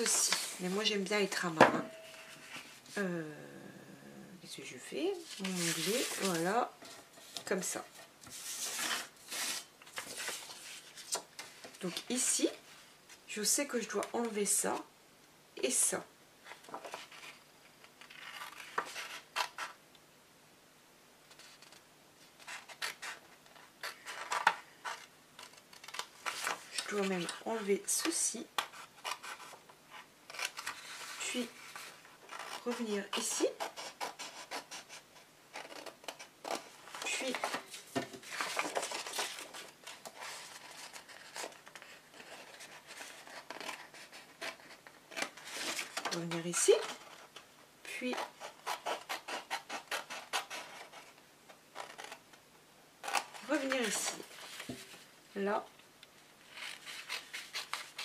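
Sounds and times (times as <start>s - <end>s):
paper rustling: 0.0s - 2.9s, 5.2s - 12.3s, 28.7s - 47.5s, 53.0s - 55.1s
scissors snipping paper: 48.0s - 51.1s, 56.5s - 58.0s.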